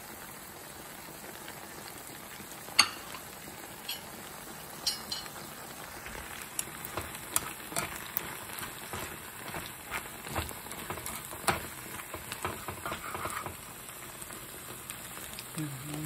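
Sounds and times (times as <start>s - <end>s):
food sizzling in skillet: 0.0s - 16.0s
spatula tapping pan: 2.8s - 3.2s, 4.8s - 5.4s, 6.5s - 13.7s.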